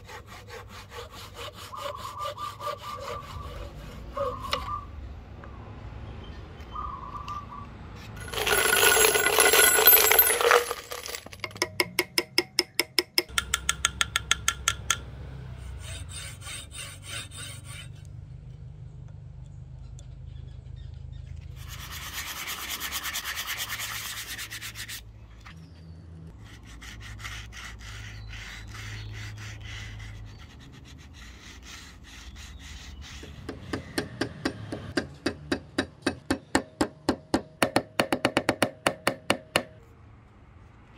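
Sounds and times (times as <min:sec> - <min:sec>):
scraping strokes on wood: 0:00.0 - 0:04.8, 0:15.6 - 0:18.1, 0:21.6 - 0:25.5, 0:26.3 - 0:34.4.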